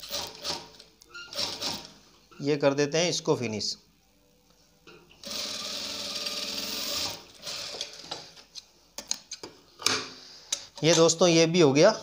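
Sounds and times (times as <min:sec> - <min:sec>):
sewing machine stitching: 0:00.0 - 0:01.9, 0:05.2 - 0:08.1.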